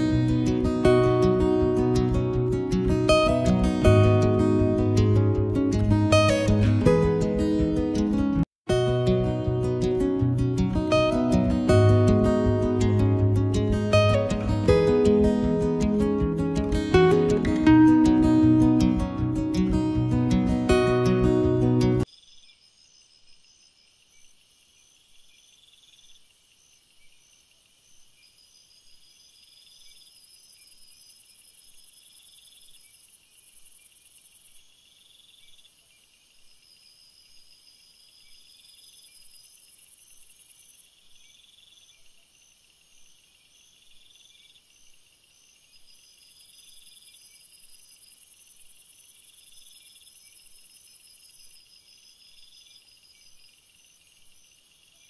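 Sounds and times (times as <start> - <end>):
insects chirping: 21.1 - 55.0.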